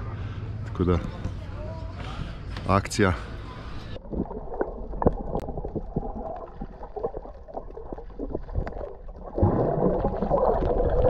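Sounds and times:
muffled underwater sloshing: 0.1 - 11.0
small underwater clicks and crackles: 3.7 - 11.0.

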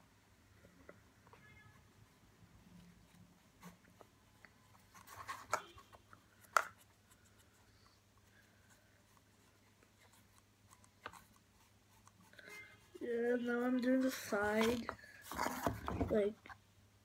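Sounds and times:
paintbrush scratching on cardboard: 6.8 - 15.5.

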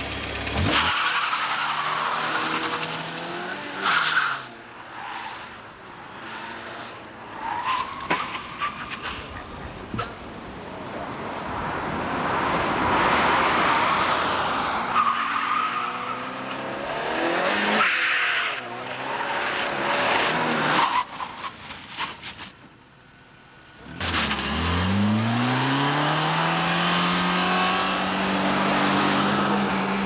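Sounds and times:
car engine revving: 0.0 - 4.6, 11.1 - 18.0, 23.8 - 30.0
tyres squealing on tarmac: 0.6 - 3.0, 3.7 - 10.2, 14.8 - 16.5, 17.7 - 22.6.

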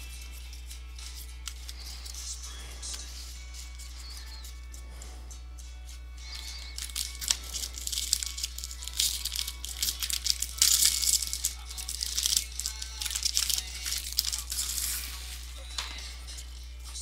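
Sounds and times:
steady low hum: 0.0 - 17.0
foil pack crinkling and rustling: 6.3 - 16.1.

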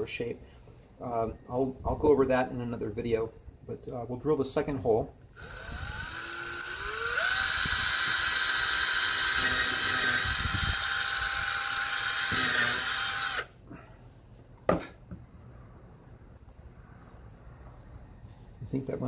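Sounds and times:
cordless drill boring: 5.2 - 13.6.

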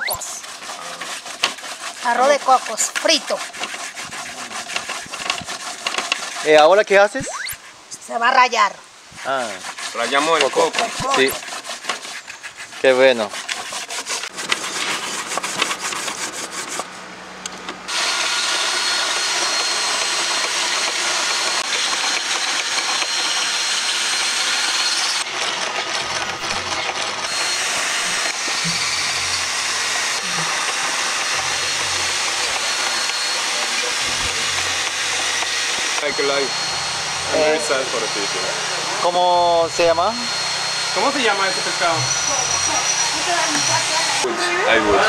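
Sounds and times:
hand-cranked mill grinding: 0.0 - 6.8, 9.2 - 16.8, 17.9 - 45.0
coconut rasped on grater: 0.0 - 7.7, 9.2 - 16.9, 18.0 - 38.4.

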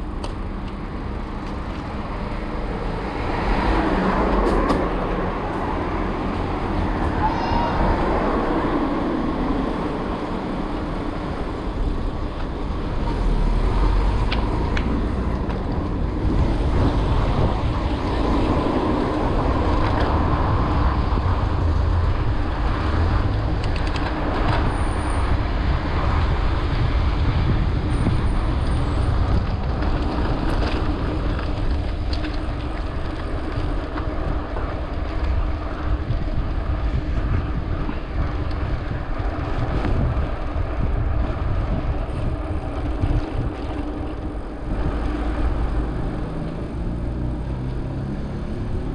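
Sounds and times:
bike tyres rumbling on road: 0.0 - 48.9
wind on microphone: 2.6 - 48.9
bike clicks and rattles: 23.2 - 24.7, 28.0 - 45.5.

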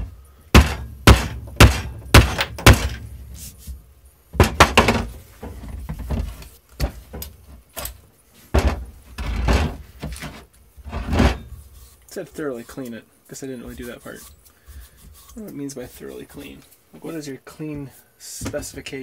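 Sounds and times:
sledgehammer thudding on floor: 0.0 - 3.1, 4.4 - 5.1.

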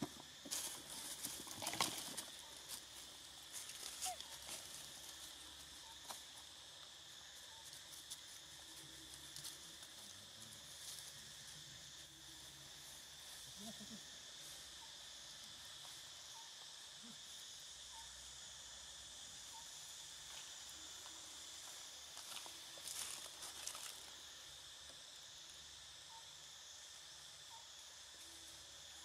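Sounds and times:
forest insects buzzing: 0.0 - 29.0.

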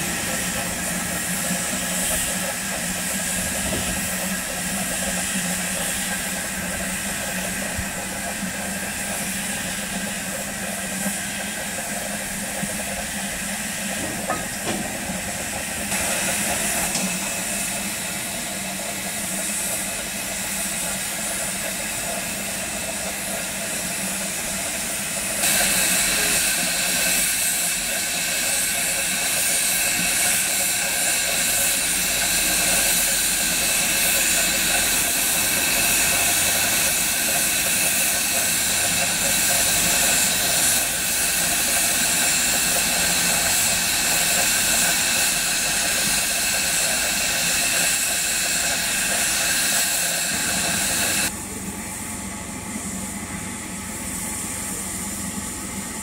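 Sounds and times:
steam hissing: 0.0 - 56.0.

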